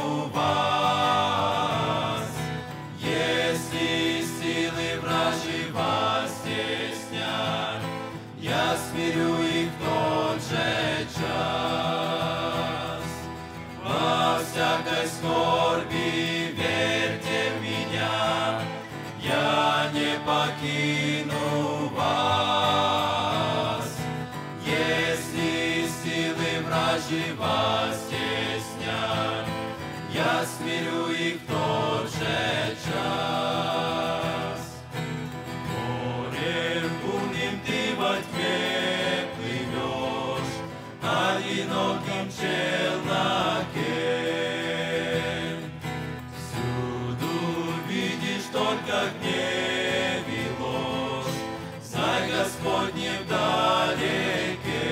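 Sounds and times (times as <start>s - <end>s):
acoustic guitar: 0.0s - 54.9s
men singing a hymn: 0.0s - 54.9s.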